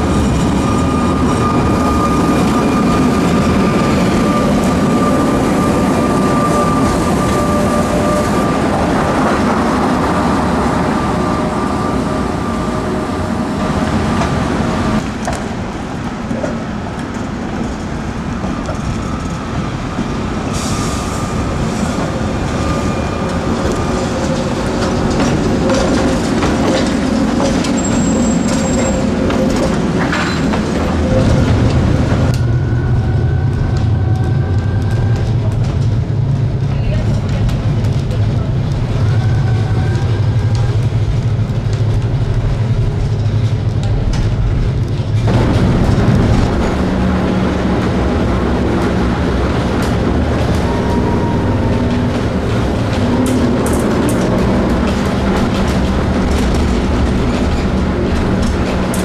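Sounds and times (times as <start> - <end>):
tram high tone: 0.0 - 15.0, 18.4 - 35.5, 45.3 - 59.0
tram rumbling on rails: 0.0 - 59.0.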